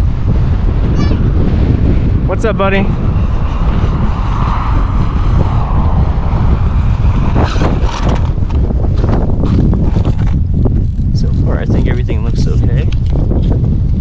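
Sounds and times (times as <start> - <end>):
wind buffeting microphone: 0.0 - 14.0
short knocks or scrapes: 7.3 - 10.4.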